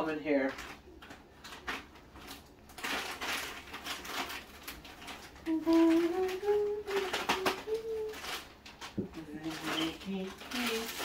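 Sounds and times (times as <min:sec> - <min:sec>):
plastic bag crinkling: 0:00.0 - 0:11.0
low voice humming: 0:05.4 - 0:08.2.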